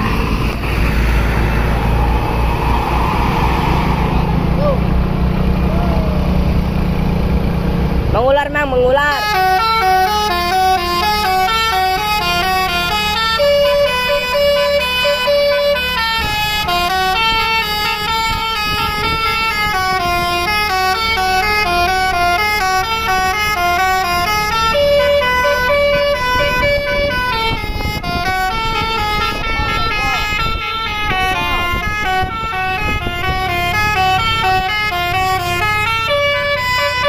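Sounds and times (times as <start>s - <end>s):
bus engine running: 0.0s - 37.0s
musical horn melody: 9.1s - 37.0s.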